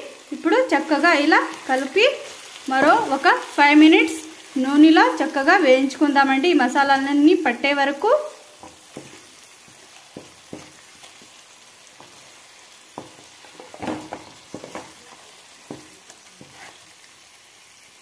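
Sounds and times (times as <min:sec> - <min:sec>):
chicken sizzling in hot oil: 0:00.0 - 0:18.0
wooden spatula scraping pan: 0:08.6 - 0:10.9, 0:13.0 - 0:16.9.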